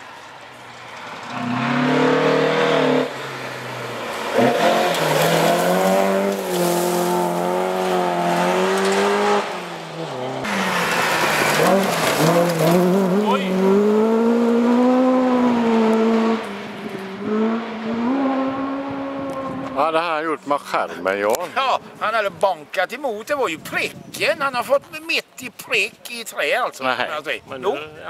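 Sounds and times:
rally car engines revving: 0.0 - 21.3
gravel spraying from tyres: 3.9 - 9.2, 10.5 - 13.4.

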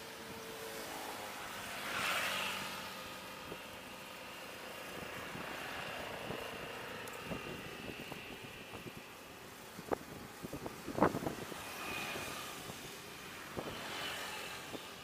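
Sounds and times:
wind noise over microphone: 4.9 - 15.0.

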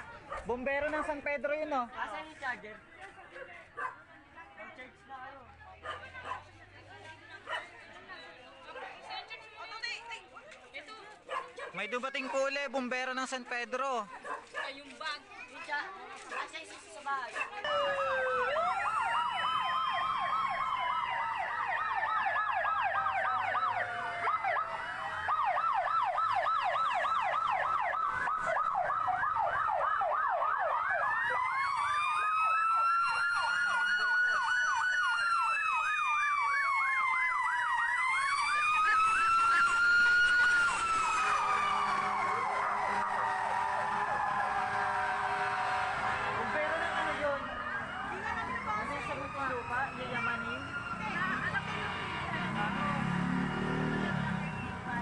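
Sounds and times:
fast warbling siren yelp: 17.6 - 55.0
rising and falling siren wails: 17.6 - 55.0.

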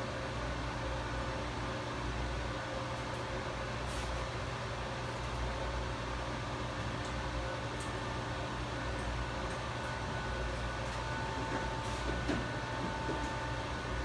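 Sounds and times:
electrical hum: 0.0 - 14.0
fan-like hiss: 1.8 - 9.8, 10.4 - 14.0.

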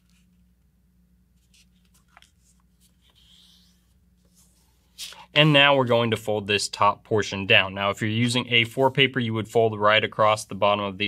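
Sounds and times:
paper rustling as it is folded: 1.4 - 5.2.

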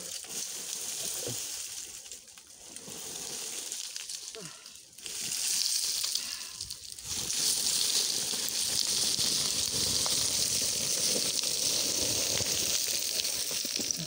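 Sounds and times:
scree stones rattling: 2.9 - 14.0.

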